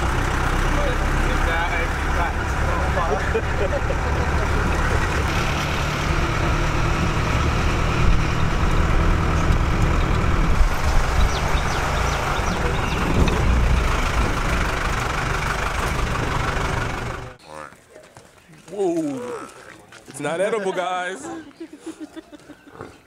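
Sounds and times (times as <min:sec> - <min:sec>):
car engine rumbling: 0:00.0 - 0:17.4
road noise: 0:00.0 - 0:23.0.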